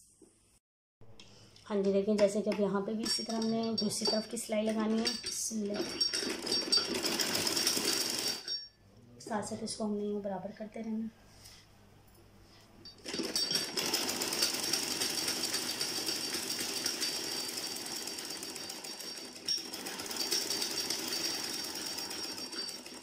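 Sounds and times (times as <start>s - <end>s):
sewing machine stitching: 4.0s - 8.6s, 13.0s - 23.0s.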